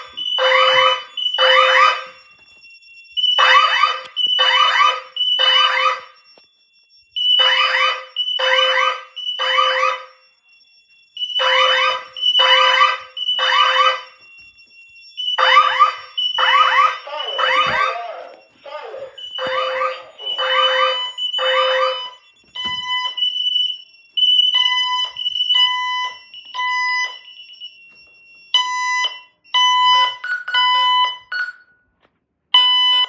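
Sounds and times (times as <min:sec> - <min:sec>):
fire alarm beeps: 0:00.0 - 0:33.0.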